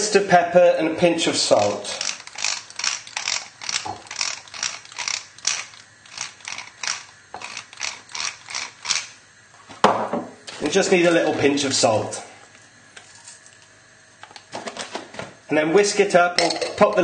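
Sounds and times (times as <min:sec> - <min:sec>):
pepper mill grinding peppercorns: 0:01.4 - 0:09.2.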